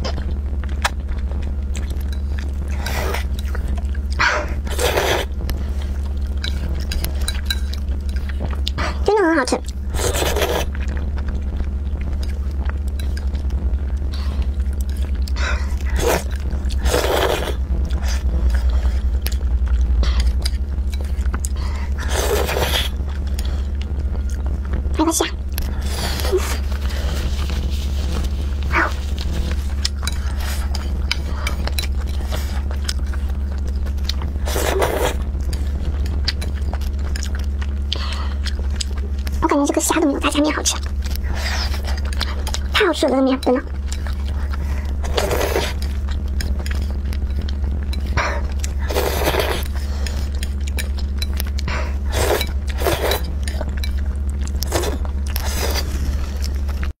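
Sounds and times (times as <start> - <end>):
wet chewing: 0.0 - 56.9
low hum: 0.0 - 57.0
noodle slurps: 4.6 - 5.3, 15.8 - 19.2, 34.4 - 35.2, 44.3 - 46.9, 48.3 - 50.5, 51.9 - 53.6.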